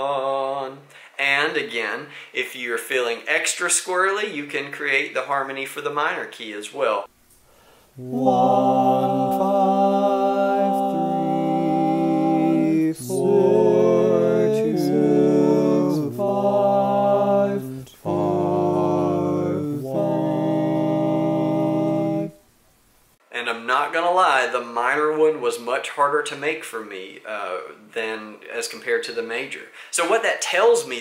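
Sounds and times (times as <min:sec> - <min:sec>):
male a cappella harmony: 0:00.0 - 0:01.2, 0:08.0 - 0:22.4.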